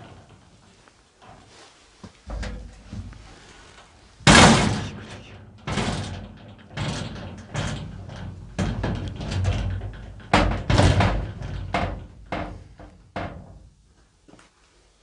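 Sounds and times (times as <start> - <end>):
metal cabinet doors banging: 2.3 - 3.1, 4.2 - 13.6.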